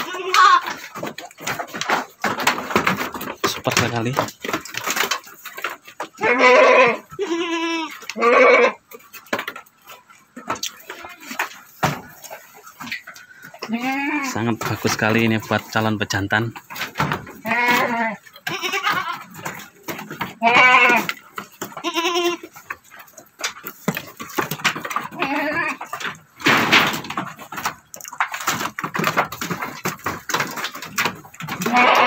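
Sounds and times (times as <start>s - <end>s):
goats bleating: 0.0s - 0.9s, 6.1s - 8.9s, 13.5s - 14.6s, 17.3s - 22.7s, 25.0s - 26.0s, 31.4s - 32.0s
hooves clattering on wooden floor: 0.0s - 32.0s.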